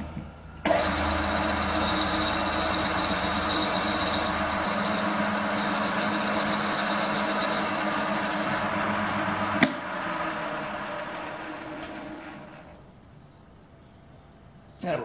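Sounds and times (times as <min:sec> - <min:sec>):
metal lathe running: 0:00.6 - 0:12.6
motor winding down: 0:00.6 - 0:12.8.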